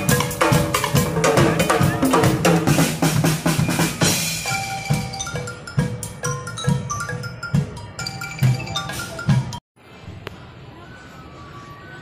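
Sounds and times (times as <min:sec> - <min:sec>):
marimba-like mallet notes: 0:00.0 - 0:09.6
upbeat music: 0:00.0 - 0:09.6.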